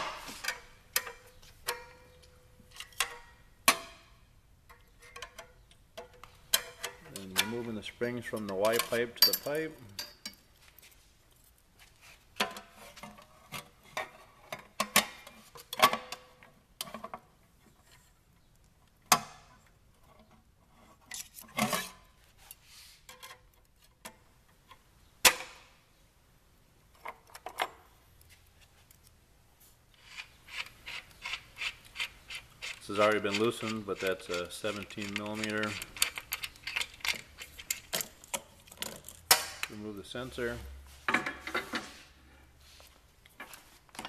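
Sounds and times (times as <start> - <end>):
metal springs clinking: 32.8 - 39.8.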